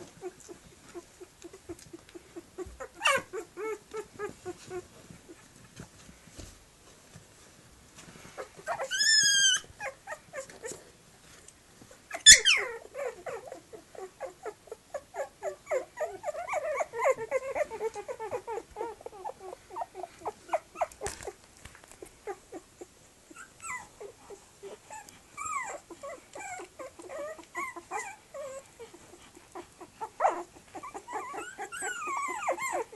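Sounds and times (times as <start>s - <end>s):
puppy play-growls: 0.0s - 5.9s, 8.0s - 11.0s, 11.8s - 32.9s
puppies squealing and whimpering: 1.5s - 4.8s, 8.4s - 10.8s, 12.1s - 21.4s, 23.3s - 32.9s
puppy yelp: 2.6s - 4.8s, 8.6s - 10.8s, 12.1s - 21.4s, 23.3s - 28.9s, 30.0s - 32.9s.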